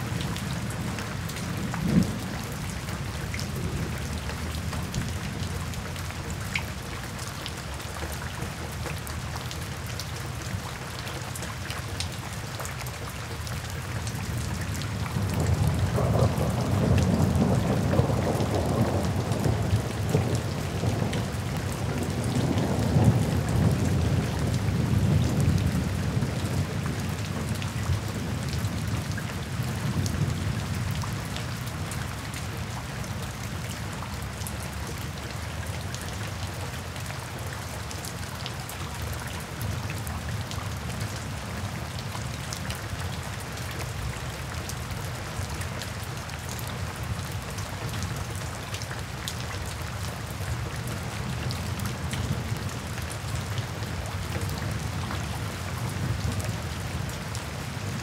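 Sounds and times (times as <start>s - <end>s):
steady rain: 0.0s - 58.0s
low roll of thunder: 15.2s - 27.5s.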